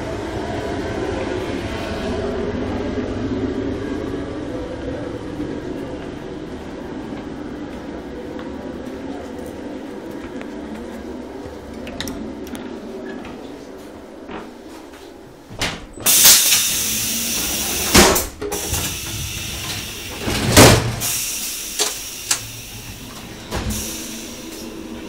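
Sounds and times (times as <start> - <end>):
low rumble: 0.0 - 14.4
loud hiss: 16.1 - 25.0.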